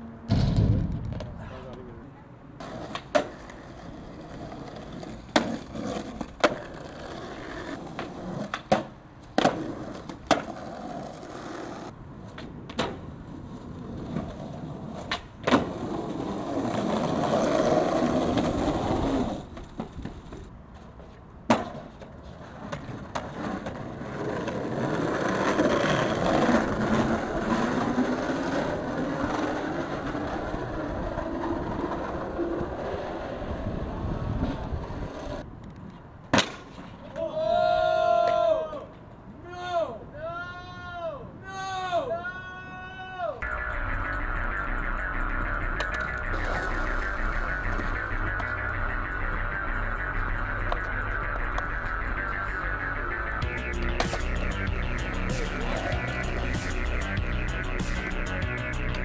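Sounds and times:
skateboard clacking: 0:02.6 - 0:33.1, 0:44.0 - 0:54.6
skateboard wheels rolling: 0:02.6 - 0:39.3, 0:45.7 - 0:49.4.

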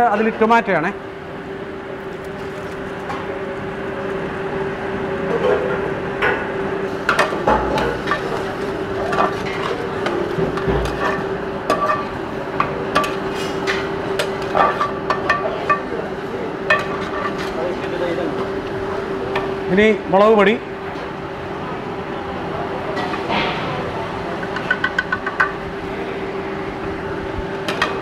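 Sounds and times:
steady hum: 0:00.0 - 0:28.0.

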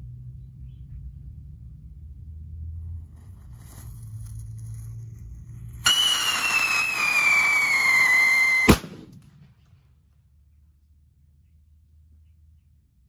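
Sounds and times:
firecracker shrill whistle: 0:05.8 - 0:08.8
firecracker bang: 0:05.8 - 0:09.6.

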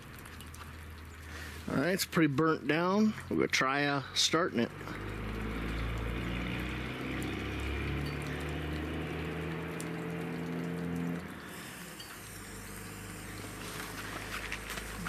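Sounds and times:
low hum: 0:04.6 - 0:15.0
camping stove burner hissing: 0:11.0 - 0:15.0.

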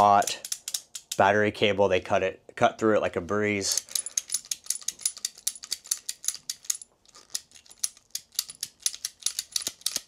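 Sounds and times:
cable cutter ratchet clicking: 0:03.7 - 0:10.0.

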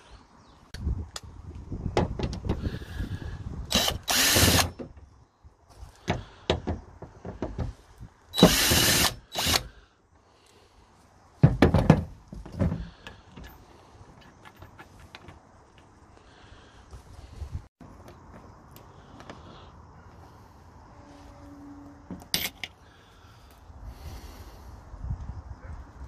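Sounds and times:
cordless drill spinning: 0:03.7 - 0:04.8, 0:08.4 - 0:09.7.

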